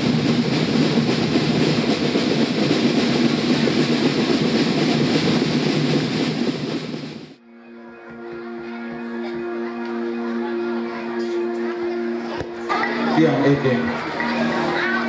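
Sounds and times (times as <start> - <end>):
loud steady rumbling: 0.0 - 7.4
held musical chord: 7.4 - 15.0.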